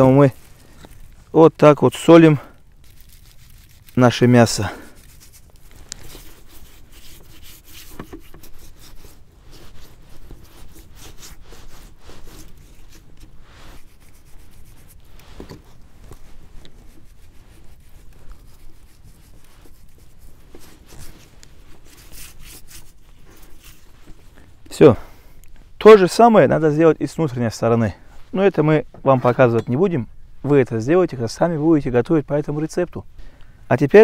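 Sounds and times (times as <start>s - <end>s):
hands rubbing salt into meat: 1.8s - 24.3s.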